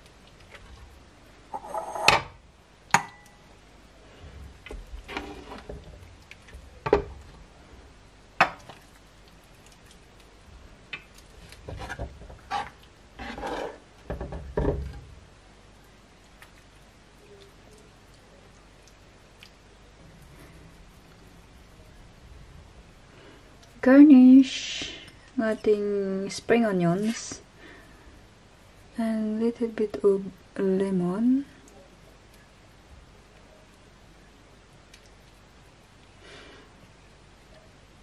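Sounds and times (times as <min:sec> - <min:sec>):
ladle scraping: 0:05.0 - 0:05.9, 0:11.4 - 0:13.9.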